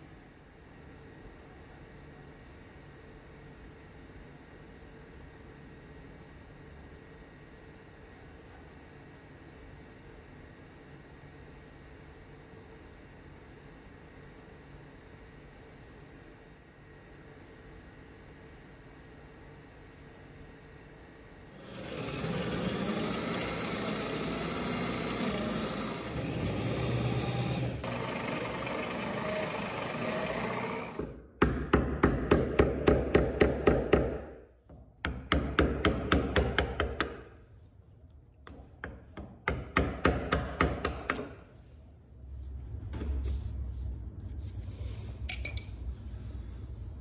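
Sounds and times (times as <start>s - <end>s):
electric drill boring: 21.6s - 31.2s.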